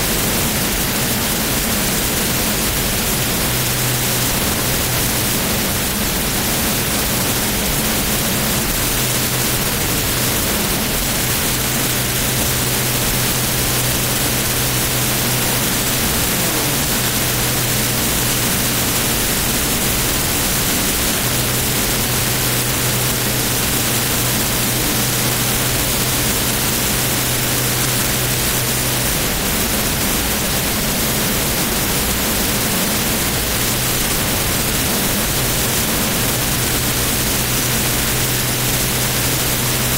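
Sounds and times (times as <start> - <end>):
low engine hum: 0.6 - 39.9
jet engine rushing: 8.7 - 24.3.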